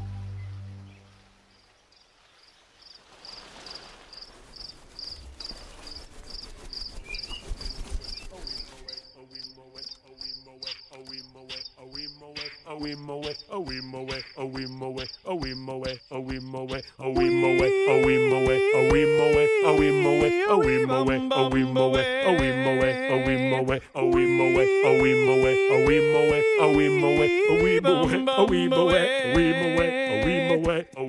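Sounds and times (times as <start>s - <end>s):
cricket-like chirping: 1.5s - 17.3s
music with steady beat: 17.2s - 31.0s.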